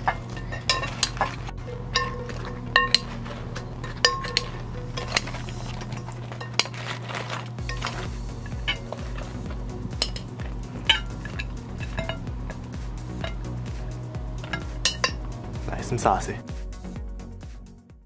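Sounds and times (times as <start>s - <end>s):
steady low hum: 0.0s - 17.5s
metal spoon clinking on glass bowl: 14.4s - 15.2s.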